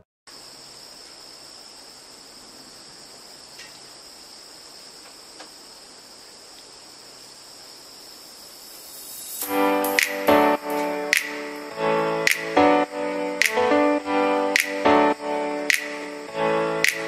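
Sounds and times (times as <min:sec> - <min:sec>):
faint hiss: 0:00.3 - 0:17.0
insects chirring: 0:00.3 - 0:17.0
faint ticks: 0:03.6 - 0:03.8, 0:06.5 - 0:06.8.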